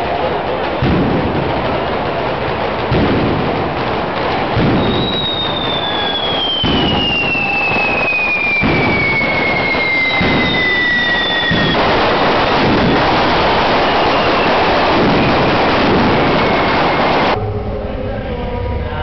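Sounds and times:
descending firework whistle: 0.0s - 17.4s
firework bangs: 0.0s - 17.4s
fireworks hissing and crackling: 0.0s - 17.4s.

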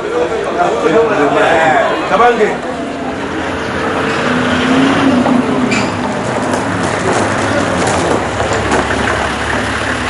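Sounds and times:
road rumble: 0.0s - 10.0s
truck engine running: 2.3s - 10.0s.

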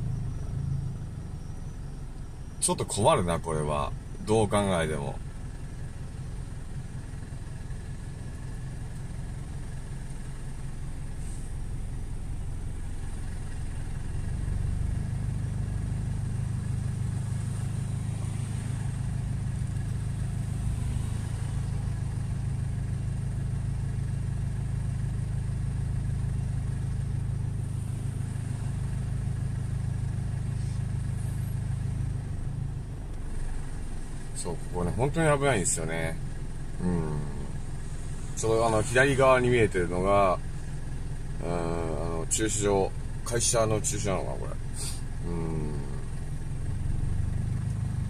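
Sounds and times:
car engine idling: 0.0s - 48.0s
cars passing: 13.8s - 23.3s.

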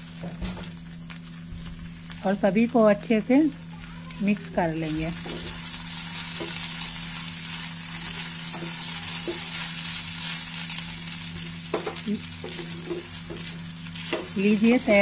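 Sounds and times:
food sizzling in a pan: 0.0s - 15.0s
steady low hum: 0.0s - 15.0s
wooden spatula scraping: 4.8s - 15.0s.

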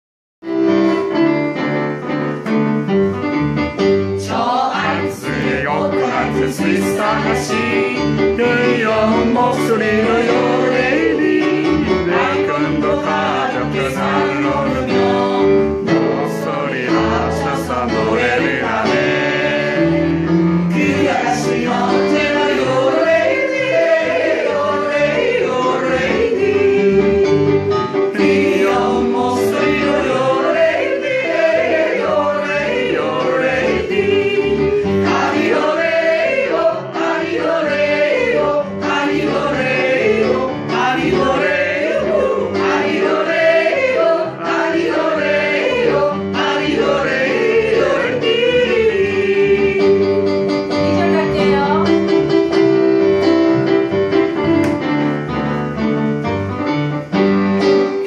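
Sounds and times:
group yodel singing: 4.2s - 50.5s
double bass line: 44.5s - 57.9s.

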